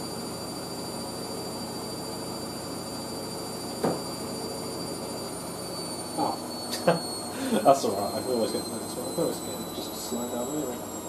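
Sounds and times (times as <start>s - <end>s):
washing machine spinning: 0.0s - 11.0s
short knock: 3.8s - 4.0s.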